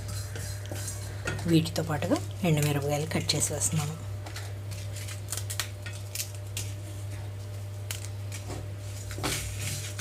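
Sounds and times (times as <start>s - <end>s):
wooden spatula scraping a metal pan: 0.0s - 1.6s
steady low hum: 0.0s - 10.0s.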